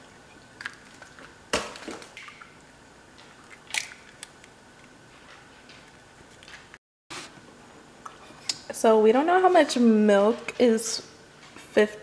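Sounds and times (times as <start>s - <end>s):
eggs cracking: 0.6s - 2.3s, 3.3s - 5.0s.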